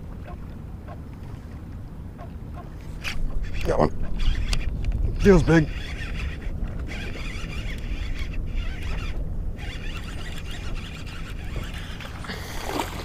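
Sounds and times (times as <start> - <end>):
wind rumble on microphone: 0.0 - 13.0
fishing reel winding: 3.0 - 12.2.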